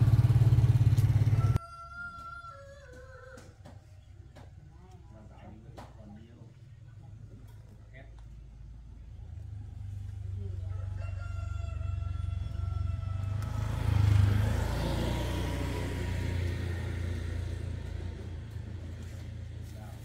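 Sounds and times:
rooster crowing: 0:01.2 - 0:03.6, 0:10.6 - 0:15.0.

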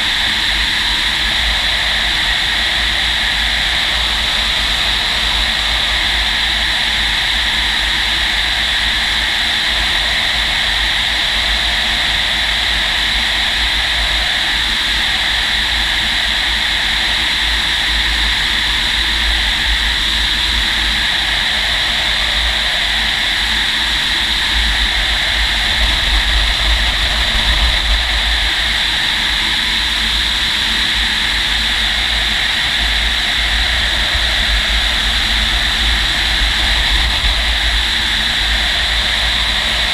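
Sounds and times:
wind buffeting rumble: 0:00.0 - 0:39.9.

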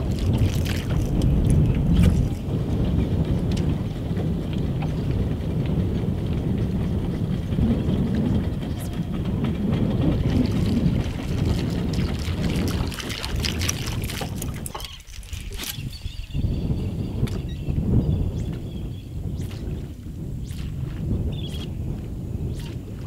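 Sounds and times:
water splashing: 0:00.0 - 0:02.4, 0:10.2 - 0:15.9
boat engine rumble: 0:00.0 - 0:23.0
wind buffeting microphone: 0:00.0 - 0:23.0.

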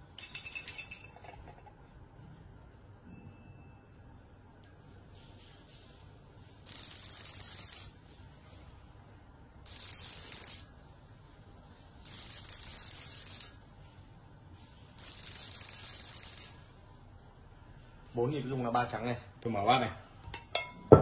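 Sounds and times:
vibration motor rattling in bowl: 0:06.7 - 0:08.0, 0:09.7 - 0:10.7, 0:12.0 - 0:13.6, 0:15.0 - 0:16.6.

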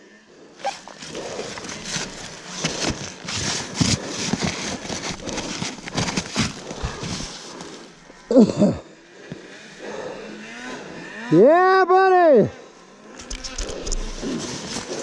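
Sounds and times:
snow crunching and scraping: 0:00.6 - 0:08.7, 0:12.9 - 0:15.0.

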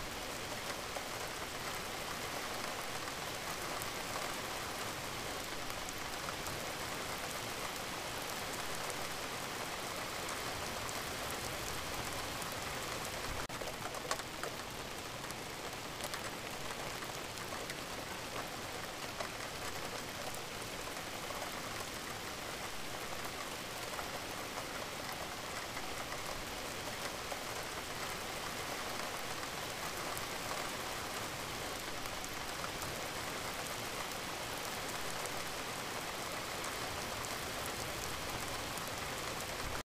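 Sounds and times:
steady rain hissing: 0:00.0 - 0:39.8
raindrop ticks: 0:10.2 - 0:33.1.

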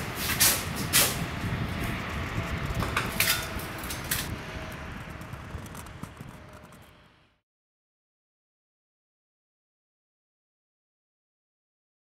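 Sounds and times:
low workshop rumble: 0:00.0 - 0:07.4.

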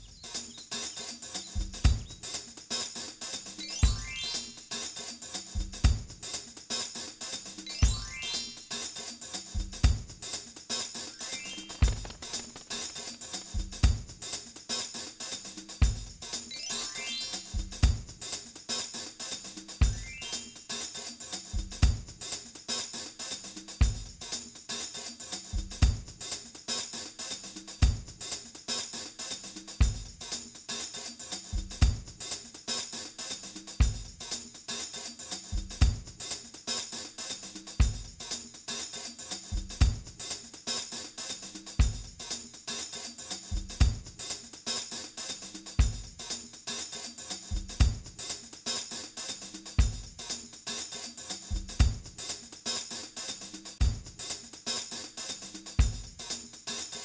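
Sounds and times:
drum-led instrumental music: 0:00.0 - 0:57.0
kick drum thumping: 0:01.6 - 0:02.2, 0:05.8 - 0:06.1, 0:09.8 - 0:10.1, 0:11.8 - 0:12.7, 0:13.6 - 0:14.2, 0:17.8 - 0:18.1, 0:25.8 - 0:26.1, 0:27.8 - 0:28.1, 0:31.8 - 0:32.1, 0:35.8 - 0:36.1, 0:39.8 - 0:40.1, 0:43.8 - 0:44.0, 0:47.8 - 0:48.0, 0:51.8 - 0:52.1, 0:53.8 - 0:54.2.

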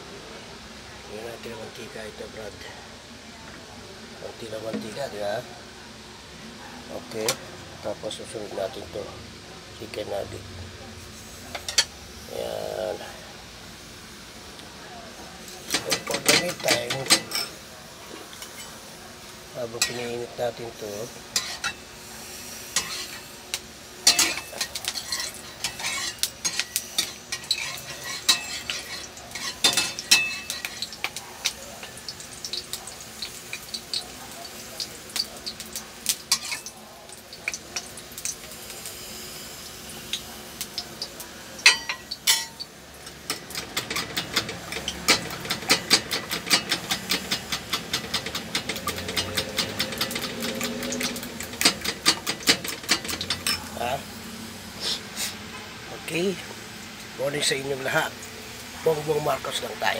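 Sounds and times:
bananas sizzling in oil: 0:00.0 - 0:59.9
spoon clinking and scraping pot: 0:19.8 - 0:20.1, 0:21.3 - 0:21.8, 0:22.8 - 0:23.2, 0:24.0 - 0:31.2, 0:41.6 - 0:42.6, 0:43.3 - 0:53.7.

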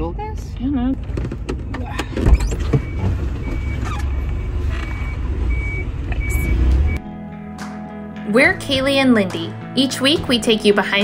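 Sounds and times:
truck rumbling: 0:00.0 - 0:07.1
knocks and clunks: 0:01.0 - 0:04.1.

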